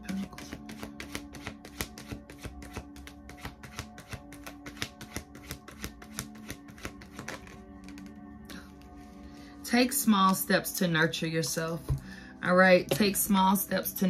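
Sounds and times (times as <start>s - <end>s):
soft background music: 0.0s - 14.0s
cards being shuffled: 0.1s - 8.2s.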